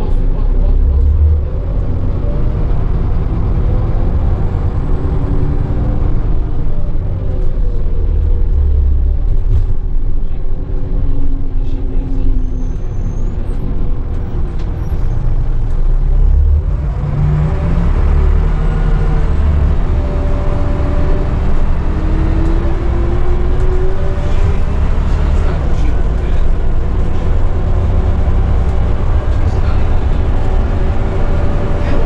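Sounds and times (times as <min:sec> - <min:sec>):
bus engine rumble: 0:00.0 - 0:32.0
rising engine whine: 0:11.0 - 0:32.0.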